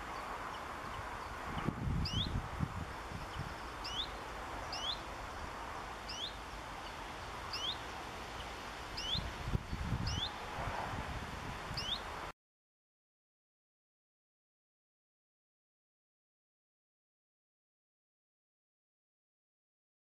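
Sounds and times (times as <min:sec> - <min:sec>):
wind rumbling on microphone: 0:00.0 - 0:12.3.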